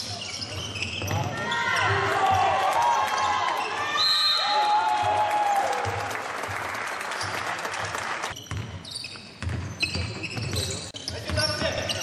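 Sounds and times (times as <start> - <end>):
shoe squeaks: 0.0 - 2.0, 8.3 - 12.0
basketball bouncing on wooden floor: 8.4 - 8.8, 9.4 - 11.9.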